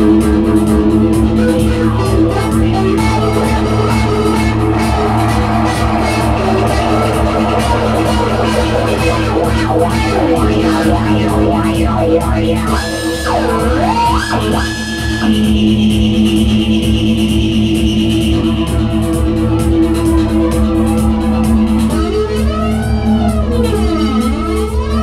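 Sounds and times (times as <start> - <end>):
electric guitar: 0.0 - 25.0
swooping synth lead line: 1.0 - 22.1
drum machine beat: 2.2 - 22.2
sustained synth tones: 3.2 - 17.6.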